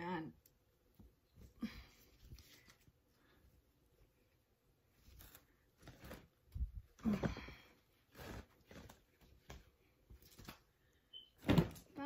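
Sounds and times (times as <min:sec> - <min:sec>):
fabric and packaging rustling: 0:02.0 - 0:03.4, 0:04.8 - 0:12.0.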